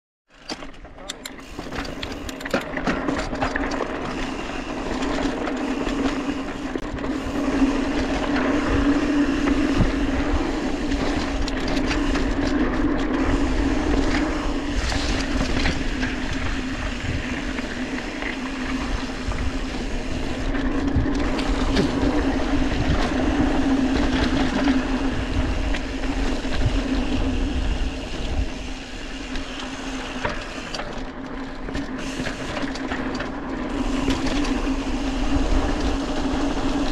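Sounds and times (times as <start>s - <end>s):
bike tyres crunching on gravel: 2.9s - 36.9s
humming drone: 3.9s - 31.0s.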